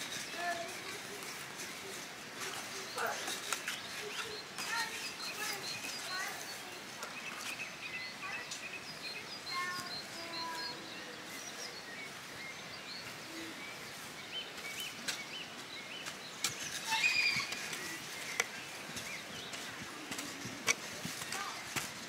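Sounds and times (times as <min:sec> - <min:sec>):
birds chirping: 0:00.0 - 0:22.0
outdoor background noise: 0:00.0 - 0:22.0
hoe scraping soil: 0:16.0 - 0:22.0.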